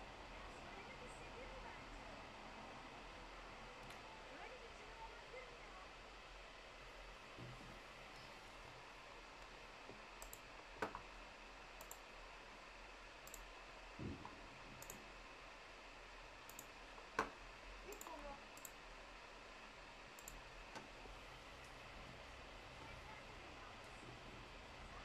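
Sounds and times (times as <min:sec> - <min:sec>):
faint clicks: 0:09.4 - 0:11.0, 0:11.8 - 0:12.1, 0:13.2 - 0:13.5, 0:14.8 - 0:15.1, 0:16.4 - 0:17.3, 0:17.9 - 0:18.8, 0:20.2 - 0:20.9.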